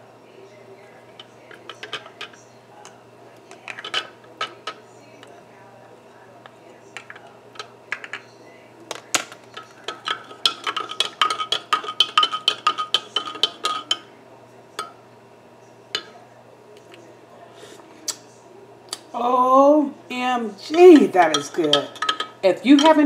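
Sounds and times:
spoon clinking in ceramic mug: 8.9 - 14.1, 20.9 - 23.0.

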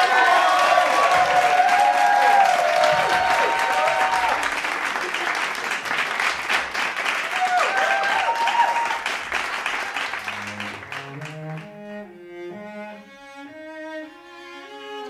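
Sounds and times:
crowd cheering and whooping: 0.0 - 5.2, 7.2 - 10.3
crowd clapping: 0.0 - 11.7.

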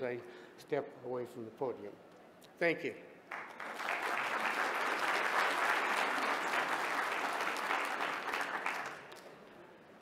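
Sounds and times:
audience applauding: 3.3 - 9.3.

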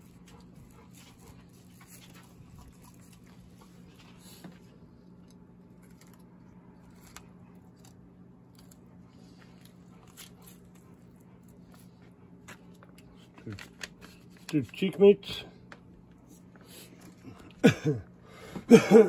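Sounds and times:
steady low hum: 0.0 - 19.0
knife cutting and scraping: 5.3 - 11.9.

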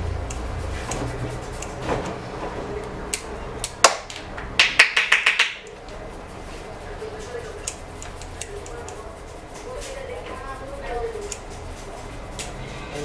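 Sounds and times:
scissors snipping hair: 0.2 - 1.8, 7.5 - 10.0, 11.0 - 12.6.

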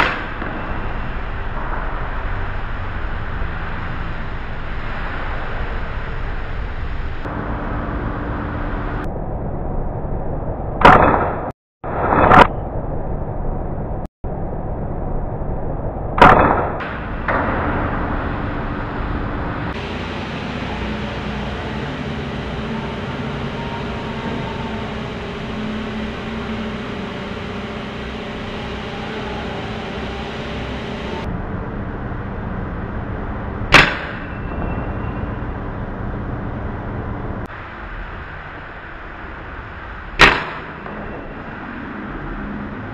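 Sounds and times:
air rifle shots: 33.7 - 34.2, 40.2 - 40.8.

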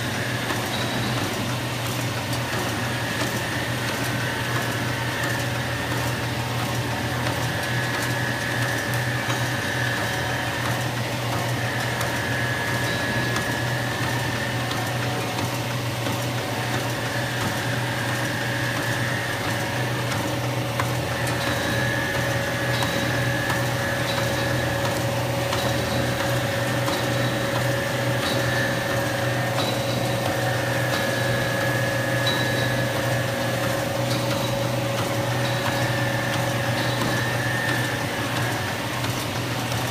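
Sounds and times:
machine humming: 0.0 - 39.9.

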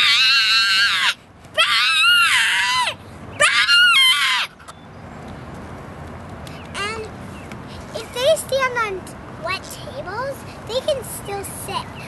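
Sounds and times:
girl screeching bird calls: 0.0 - 4.6.

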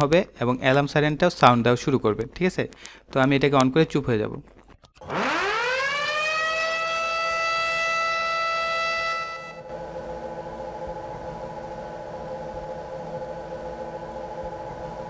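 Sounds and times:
alarm siren whistle-like tone: 5.0 - 15.0
roller conveyor hum: 9.0 - 15.0.

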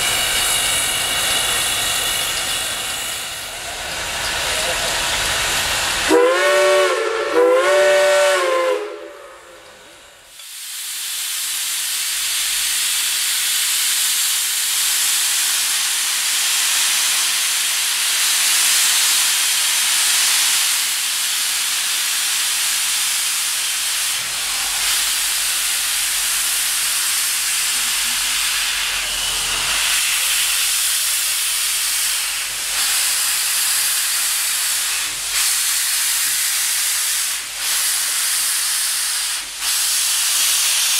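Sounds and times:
loud steam hiss: 0.0 - 40.9
steam whistle: 6.1 - 9.6.

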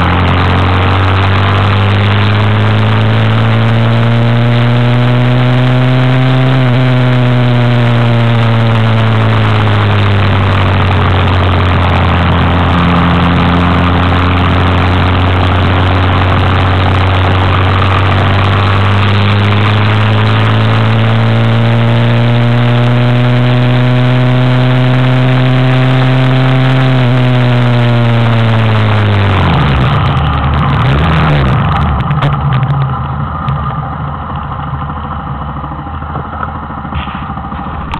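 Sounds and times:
motorcycle engine: 0.0 - 37.9
wind rush: 7.1 - 21.3.

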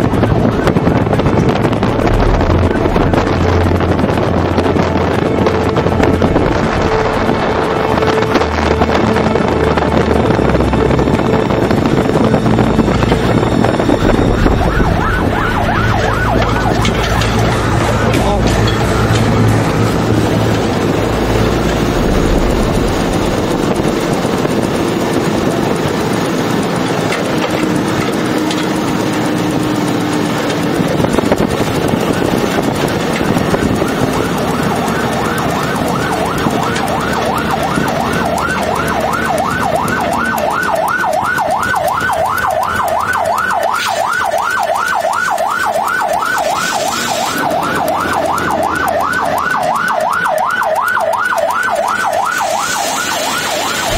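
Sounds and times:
fast yelping siren: 0.0 - 53.9
truck engine and road noise: 0.0 - 53.9.

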